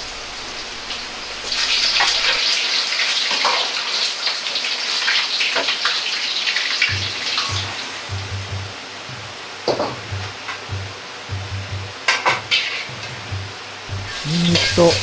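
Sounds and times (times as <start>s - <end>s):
oil sizzling and crackling: 0.0s - 11.2s, 12.4s - 15.0s
low thumps: 6.9s - 12.1s, 12.9s - 15.0s.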